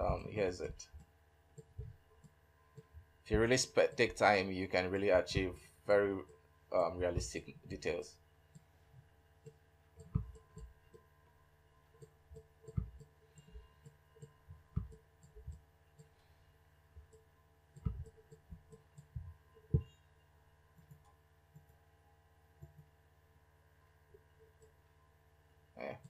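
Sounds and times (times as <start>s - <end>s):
computer mouse clicks and thumps: 0.0s - 4.2s, 5.3s - 5.6s, 8.5s - 11.0s, 11.9s - 16.1s, 17.0s - 20.0s, 20.8s - 21.8s, 22.6s - 23.0s, 24.4s - 24.8s
low electrical hum: 0.0s - 26.0s.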